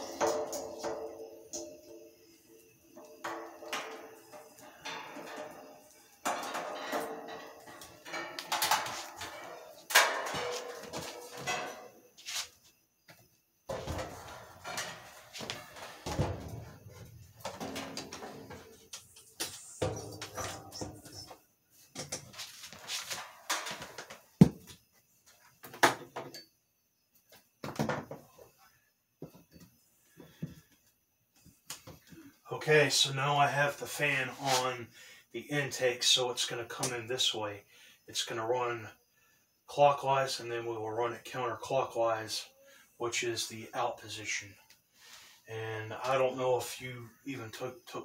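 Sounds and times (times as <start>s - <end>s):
metal fan knocking and rattling: 0.0s - 11.9s, 13.7s - 18.8s.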